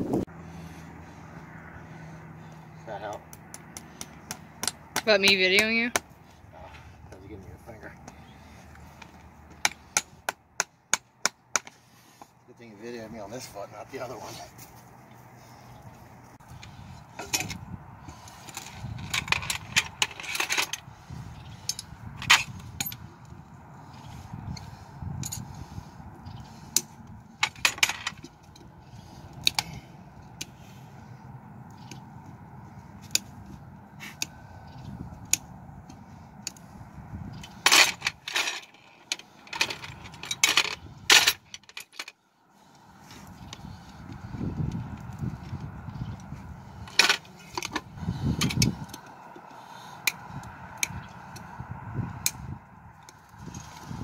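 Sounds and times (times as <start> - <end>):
metal tools clinking: 18.2 - 20.8, 21.6 - 23.1, 26.7 - 28.7, 37.4 - 42.2, 46.8 - 47.8.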